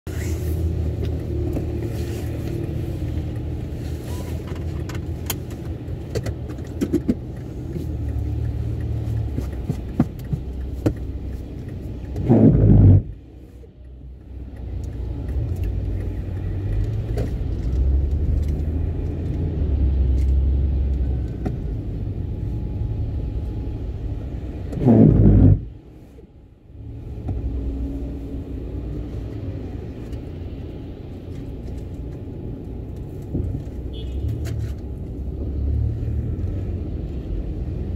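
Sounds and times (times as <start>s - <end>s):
car cabin rumble: 0.8s - 16.3s, 20.2s - 30.2s.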